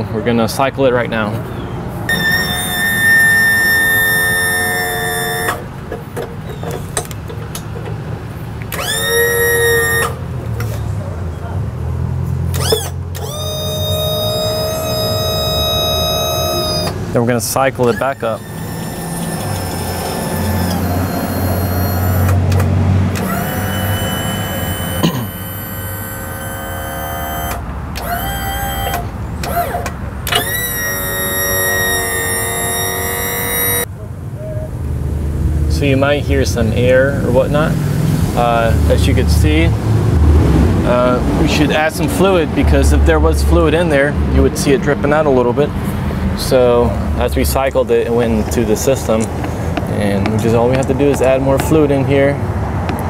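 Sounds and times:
electric pump motor whining: 0:02.1 - 0:07.9, 0:08.5 - 0:10.8, 0:12.5 - 0:33.9.

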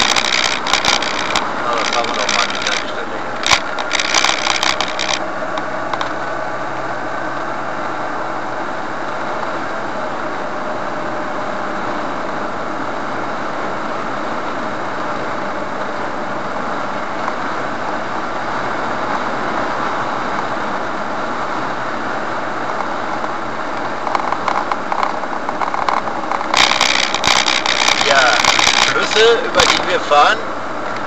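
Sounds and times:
rough uneven surges of noise: 0:00.0 - 0:05.2, 0:24.0 - 0:30.5
car road and engine noise: 0:00.0 - 0:31.0.

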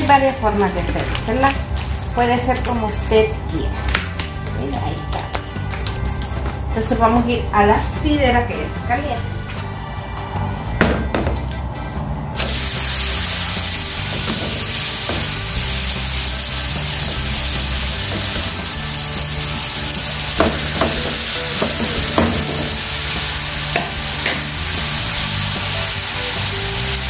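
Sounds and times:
steaks sizzling in a frying pan: 0:12.4 - 0:27.0
utensil knocks: 0:20.4 - 0:22.8.

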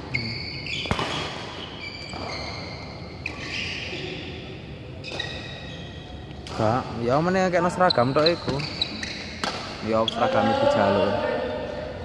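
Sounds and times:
shoes squeaking on court: 0:00.0 - 0:04.4, 0:05.0 - 0:06.4, 0:07.7 - 0:10.4.

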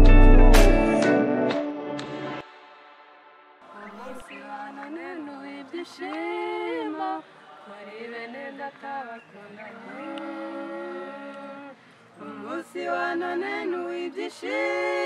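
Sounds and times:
women singing a cappella: 0:03.6 - 0:15.0.

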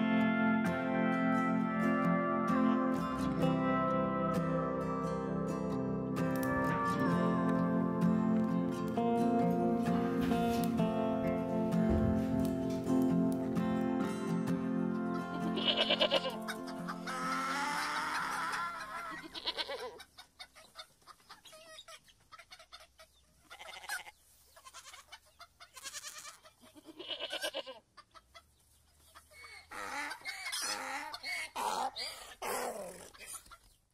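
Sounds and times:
acoustic guitar music: 0:00.0 - 0:18.9
chickens clucking: 0:15.0 - 0:27.0, 0:27.8 - 0:33.9.

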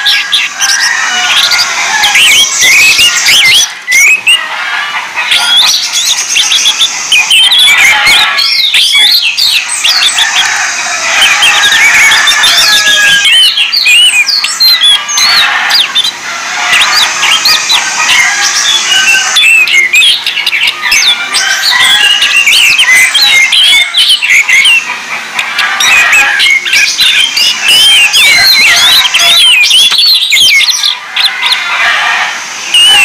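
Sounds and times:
thrushes singing: 0:00.0 - 0:33.0.

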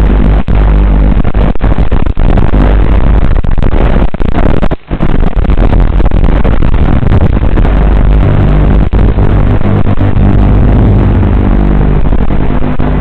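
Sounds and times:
drone motors and propellers: 0:06.9 - 0:13.0.

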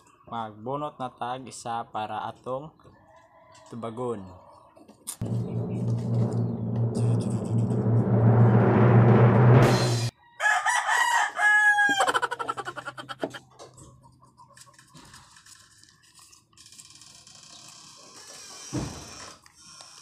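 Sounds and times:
loud music: 0:05.2 - 0:10.1
steady low hum: 0:05.2 - 0:10.1
rooster crowing: 0:10.1 - 0:12.4.

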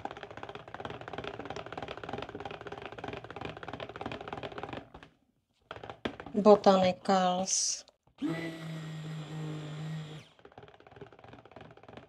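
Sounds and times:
stick blender buzzing: 0:08.2 - 0:10.8.

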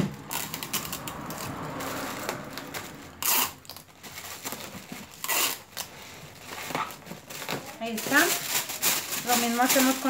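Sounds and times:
tape tearing: 0:00.0 - 0:10.0
tissue paper rustling: 0:05.9 - 0:10.0.

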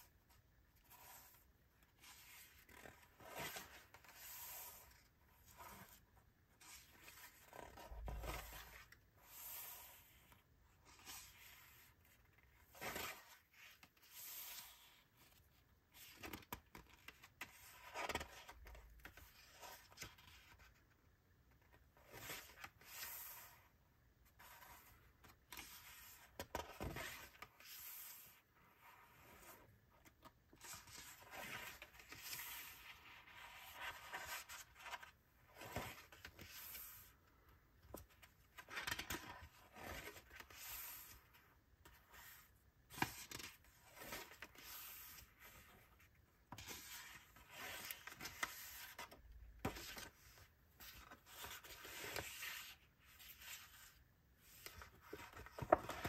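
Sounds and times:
paper pages rustling: 0:37.9 - 0:41.3, 0:46.5 - 0:56.0.

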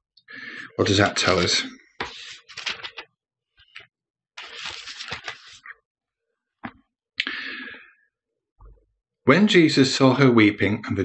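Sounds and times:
paper pages rustling: 0:01.2 - 0:05.8.

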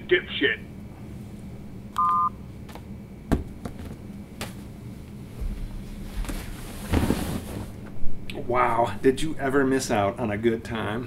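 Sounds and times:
phone keypad beep: 0:02.0 - 0:02.4.

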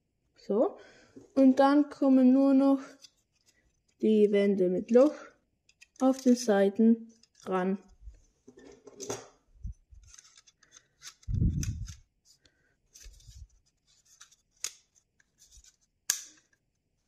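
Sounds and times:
plastic parts scraping and rubbing: 0:08.4 - 0:15.9
plastic parts clicking together: 0:10.0 - 0:12.0.

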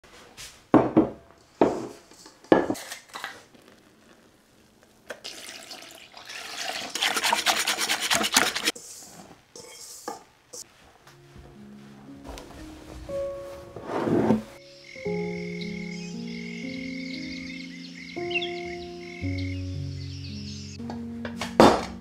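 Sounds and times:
kitchenware knocking on wood: 0:00.8 - 0:01.8, 0:21.3 - 0:22.0
spatula scraping a bowl: 0:06.9 - 0:10.6, 0:13.8 - 0:14.6.

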